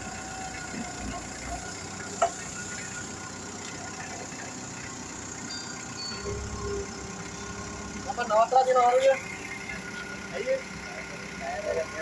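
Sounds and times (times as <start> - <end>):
forklift mechanical hum: 0.0 - 12.0.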